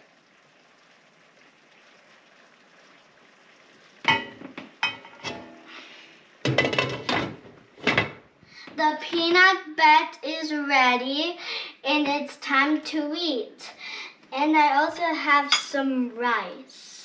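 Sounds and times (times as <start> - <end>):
stirring in a cooking pot: 4.0 - 6.5
glass pot lid clattering on pot: 4.1 - 5.6, 6.5 - 7.4.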